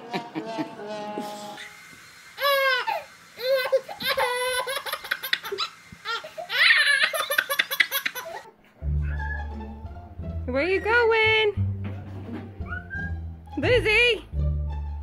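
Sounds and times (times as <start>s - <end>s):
baby laughing: 2.4s - 9.5s.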